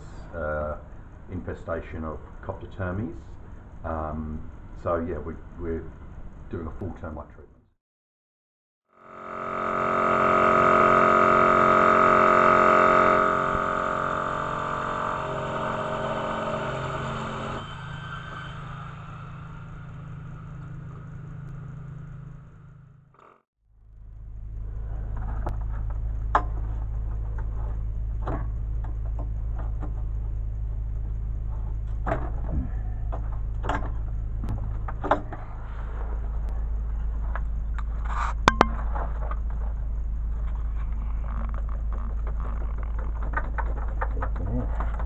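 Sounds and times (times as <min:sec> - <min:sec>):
motor droning: 0:08.9 - 0:37.4
sharp knocks: 0:38.5 - 0:39.0.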